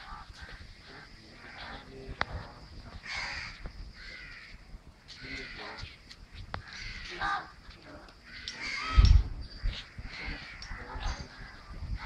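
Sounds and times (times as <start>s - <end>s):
sharp clicks: 8.0s - 9.3s, 10.5s - 10.8s.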